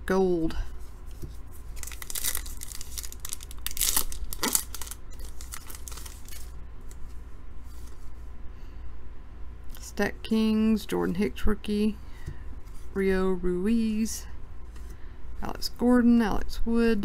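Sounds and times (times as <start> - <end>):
cards rustling: 1.0 - 7.1
wrapper tearing and crinkling: 1.7 - 6.6.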